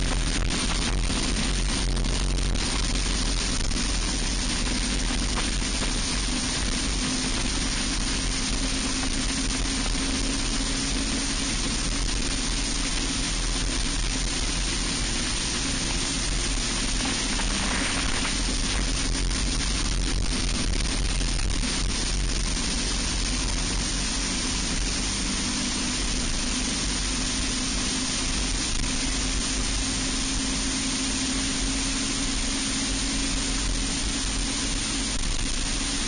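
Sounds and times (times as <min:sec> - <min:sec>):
kart engine running flat out: 0:00.0 - 0:30.6
wind rush: 0:13.8 - 0:27.2.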